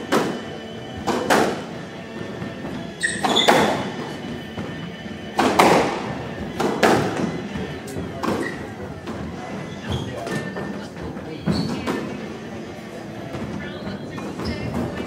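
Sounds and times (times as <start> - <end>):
squash ball hits: 0.0 - 1.7, 3.1 - 4.0, 5.3 - 9.2
shoe squeaks on wooden floor: 2.7 - 4.8, 8.2 - 10.8, 11.4 - 11.9, 13.7 - 15.0.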